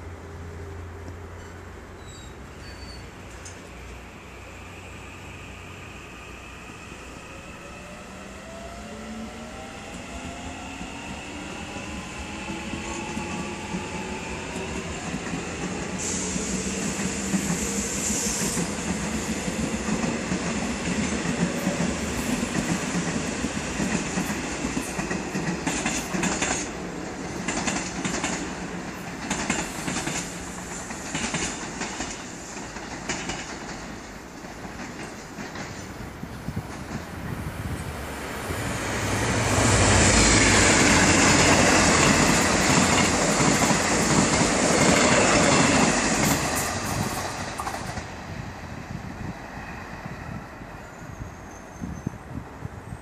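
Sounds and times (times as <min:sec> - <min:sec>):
brief high squeal: 0:01.4 - 0:03.2
train wheels clacking over joints: 0:12.5 - 0:35.9, 0:40.1 - 0:48.1.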